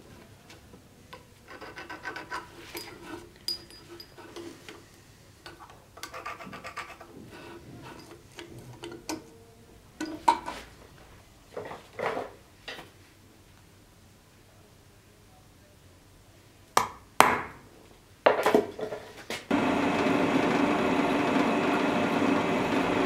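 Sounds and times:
metal parts clicking and clinking: 2.1s - 4.4s.

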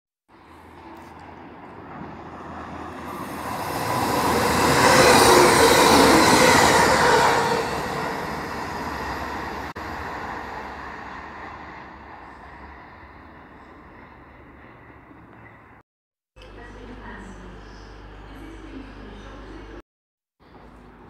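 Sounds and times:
diesel train passing: 0.3s - 15.8s.

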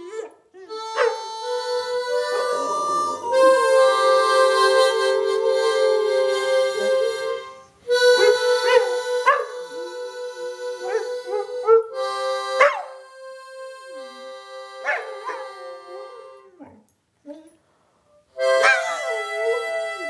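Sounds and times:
harmonica playing chords: 0.0s - 16.6s, 18.3s - 20.0s
dog howling: 2.2s - 6.0s.

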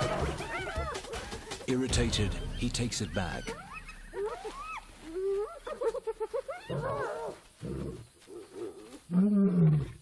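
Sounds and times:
hyenas giggling and whooping: 0.0s - 1.6s, 3.5s - 7.9s.

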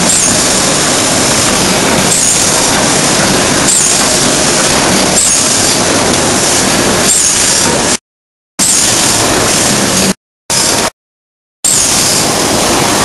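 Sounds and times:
ring rolling machine din: 0.0s - 8.0s
short recurring mechanical sound: 0.0s - 8.0s, 8.6s - 10.9s, 11.6s - 13.0s.

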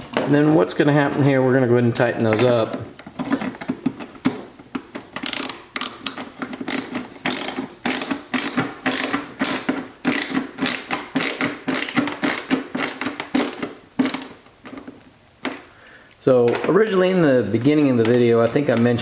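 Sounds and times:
hand ratchet clicking: 5.0s - 14.4s.

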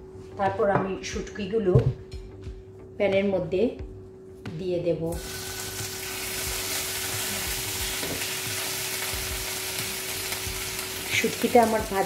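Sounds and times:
fish sizzling in hot oil: 5.2s - 12.0s.

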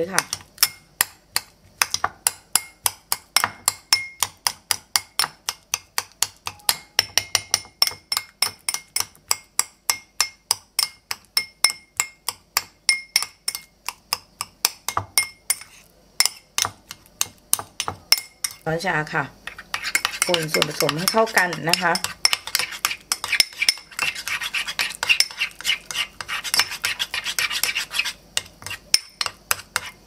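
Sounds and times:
metal spoon clinking on ceramic bowl: 3.4s - 4.3s, 6.4s - 13.7s, 14.9s - 18.6s, 19.7s - 25.5s, 28.4s - 29.9s.

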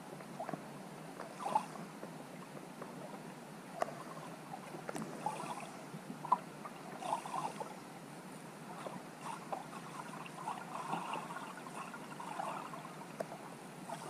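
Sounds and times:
underwater crackling noise: 0.2s - 7.8s, 8.7s - 14.0s
bubbly gurgles: 3.8s - 7.8s, 8.6s - 14.0s.

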